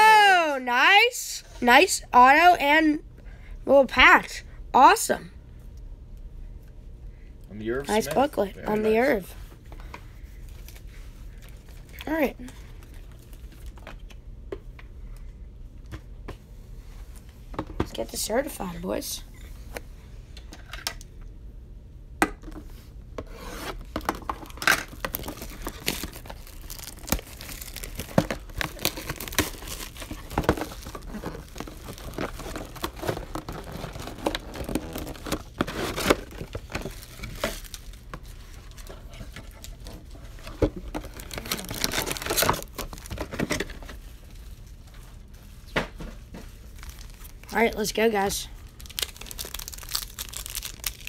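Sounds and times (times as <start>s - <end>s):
cardboard and plastic rustling: 22.6s - 51.0s.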